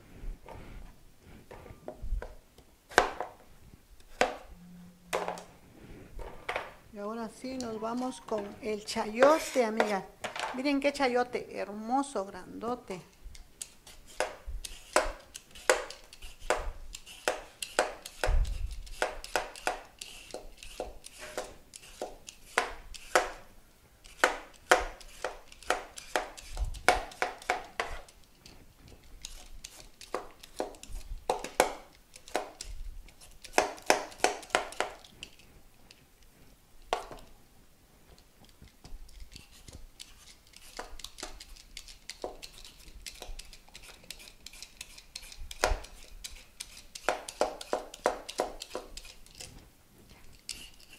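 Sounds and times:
vegetable peeler scraping skin: 7.5s - 10.0s, 13.6s - 23.3s, 24.0s - 28.2s, 28.9s - 35.4s, 38.6s - 49.5s, 50.2s - 50.9s.

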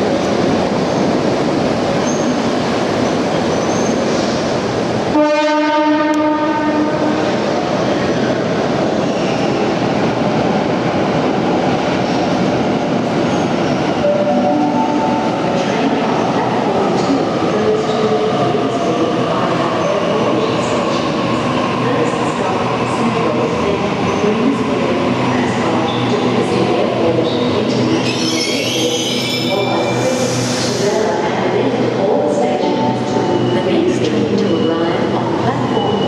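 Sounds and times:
train rumble and rail clatter: 0.0s - 36.0s
train horn blast: 5.1s - 7.0s.

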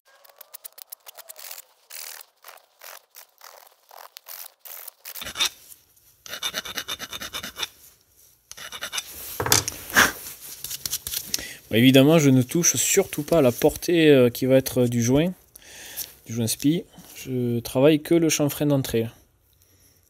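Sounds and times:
metal tool scraping aluminium: 5.2s - 5.6s, 6.2s - 7.8s, 8.5s - 10.2s.

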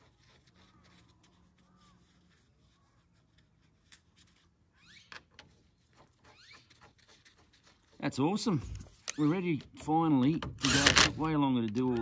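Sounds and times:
handling clicks and scrapes: 0.0s - 12.0s
faint bird chirps: 0.5s - 3.8s, 4.7s - 7.0s.

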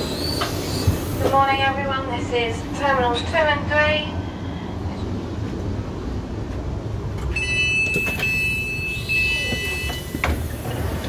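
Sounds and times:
train carriage rumble: 0.0s - 11.0s
electronic warning beeps: 7.4s - 10.3s.

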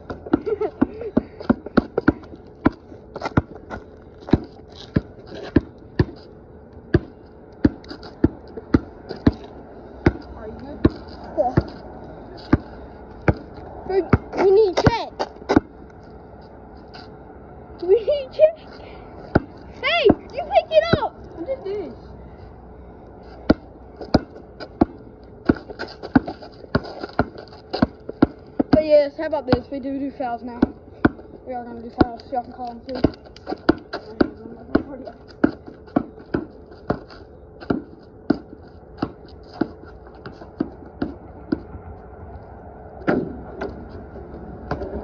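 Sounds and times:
basketball dribbled on concrete: 0.0s - 6.2s, 6.9s - 11.8s, 12.5s - 15.8s, 19.3s - 21.1s, 23.4s - 29.9s, 30.5s - 31.2s, 31.8s - 41.7s, 44.6s - 45.0s.

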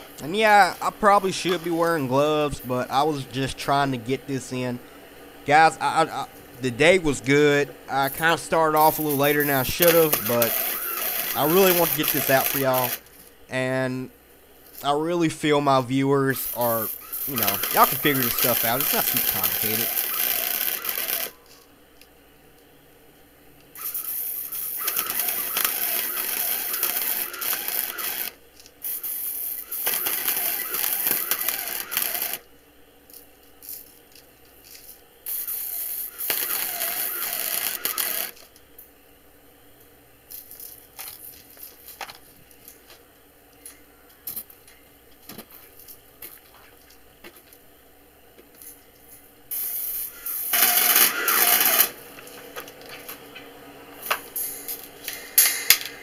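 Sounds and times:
welding arc crackling: 0.0s - 4.5s, 5.5s - 15.4s, 16.2s - 21.5s, 23.8s - 32.5s, 35.2s - 38.5s, 49.5s - 53.4s.

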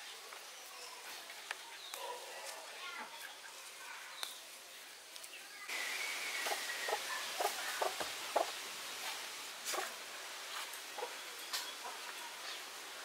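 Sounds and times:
outdoor background hiss: 0.0s - 13.0s
chickens clucking: 6.3s - 12.7s.

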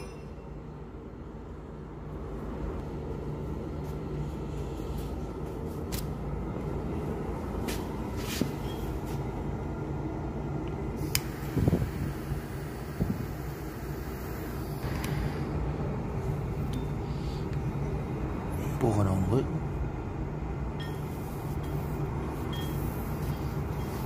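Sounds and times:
machine humming: 8.8s - 18.8s.

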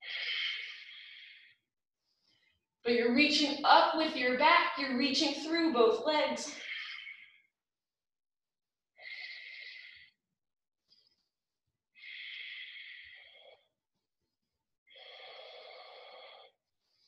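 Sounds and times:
woman breathing: 0.0s - 2.6s, 6.4s - 7.5s.

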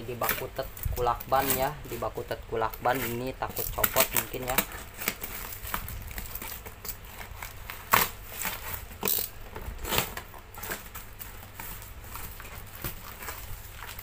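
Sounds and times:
tape and cardboard ripping: 0.0s - 14.0s.

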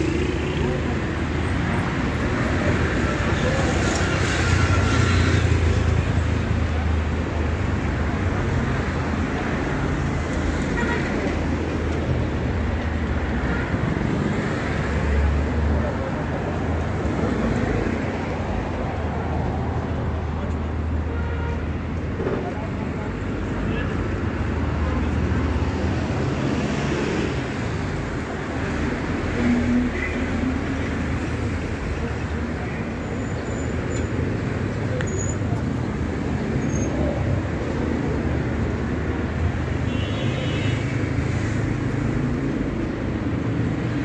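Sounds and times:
road traffic rumble: 0.0s - 44.0s.

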